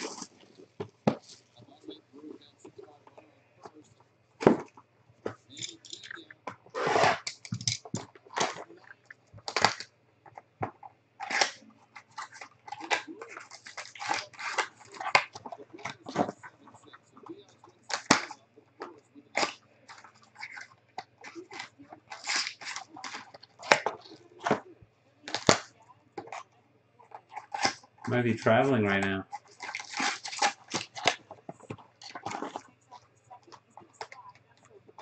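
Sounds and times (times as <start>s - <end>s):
cardboard rustling: 10.6s - 16.5s, 27.4s - 32.6s
plastic shrink-wrap crinkling: 21.3s - 24.4s, 29.4s - 31.2s.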